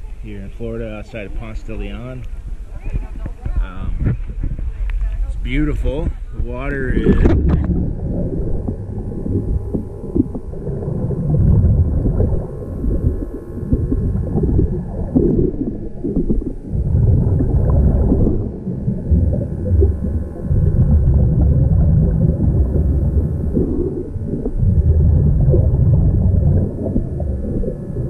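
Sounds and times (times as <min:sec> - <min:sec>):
underwater breathing bubbles: 0:07.0 - 0:28.0.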